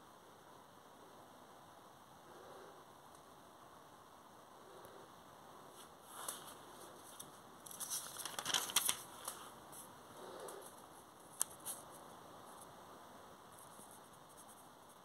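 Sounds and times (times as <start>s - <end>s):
thin paper pages rustling: 5.8s - 9.9s.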